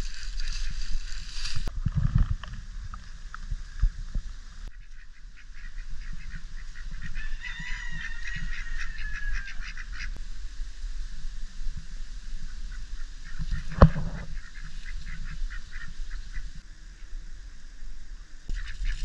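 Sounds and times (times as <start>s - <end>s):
ducks quacking: 0.1s - 1.5s, 4.7s - 10.2s, 12.4s - 16.6s, 18.5s - 19.0s.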